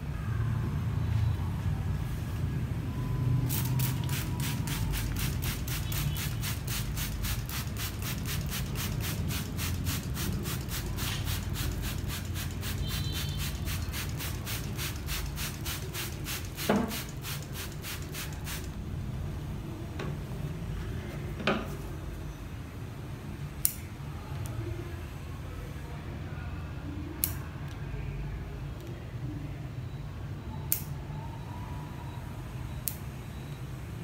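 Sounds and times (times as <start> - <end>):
spray bottle hissing sprays: 3.5 - 18.7.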